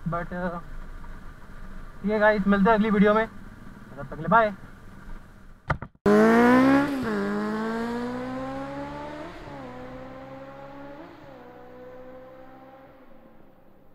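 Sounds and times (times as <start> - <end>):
motorcycle engine revving: 6.1 - 13.8.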